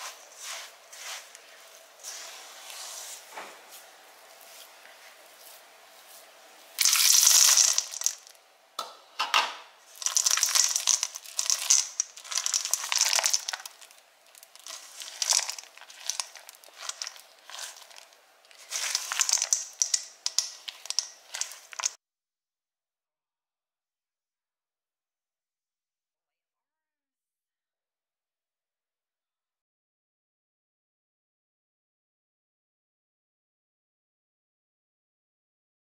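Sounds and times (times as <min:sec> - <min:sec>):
spatula stirring dough in a bowl: 0:00.0 - 0:03.2, 0:04.4 - 0:08.3, 0:09.9 - 0:22.0.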